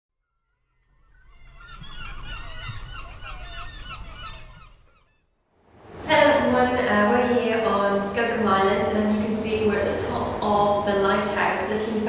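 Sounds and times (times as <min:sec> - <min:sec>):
birds honking: 0:01.1 - 0:05.3.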